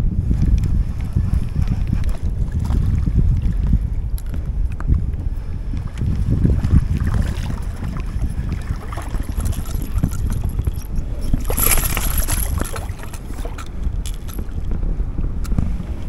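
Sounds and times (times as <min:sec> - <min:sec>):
wind rumbling on microphone: 0:00.0 - 0:16.0
fishing reel cranking: 0:09.0 - 0:14.6.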